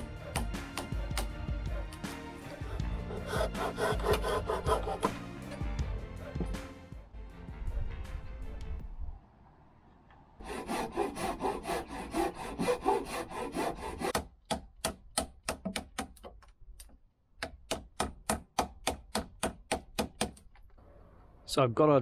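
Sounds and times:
hand saw cutting wood: 0:00.0 - 0:05.6, 0:10.4 - 0:16.0.

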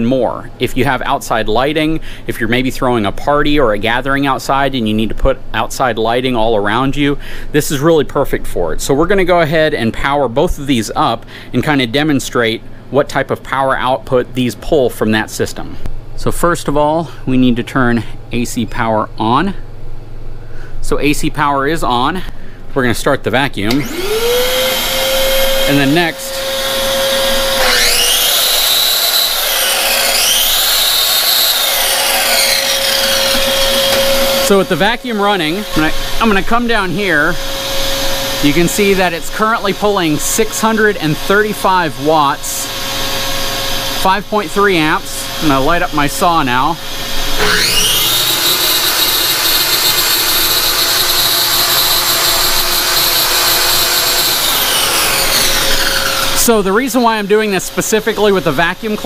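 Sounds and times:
circular saw motor whining: 0:23.7 - 0:59.0
shop vacuum humming: 0:23.7 - 0:59.0.

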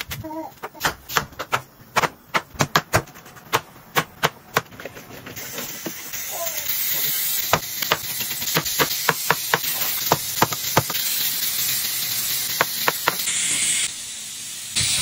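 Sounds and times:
steady hiss: 0:05.0 - 0:15.0.

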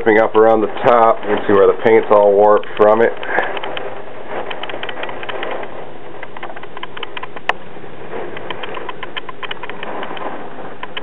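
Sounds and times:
heavy rain rushing: 0:00.0 - 0:11.0
sharp click: 0:02.7 - 0:07.6, 0:08.3 - 0:11.0.

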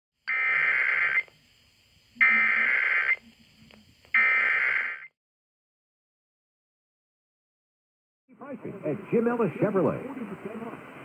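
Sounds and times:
warbling digital data tones: 0:00.3 - 0:01.3, 0:02.2 - 0:03.4, 0:04.1 - 0:05.1.

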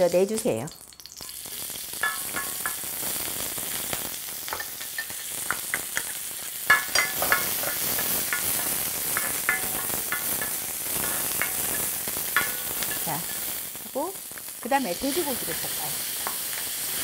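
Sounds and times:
onions sizzling in oil: 0:00.0 - 0:17.0
utensils knocking against pan: 0:02.0 - 0:02.8, 0:04.5 - 0:13.5.

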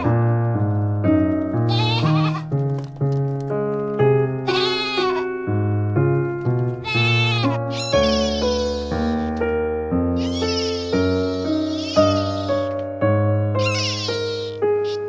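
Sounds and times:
background music: 0:00.0 - 0:15.0
goats bleating: 0:01.7 - 0:02.5, 0:04.4 - 0:05.4, 0:06.8 - 0:09.4, 0:10.2 - 0:12.8, 0:13.6 - 0:15.0.

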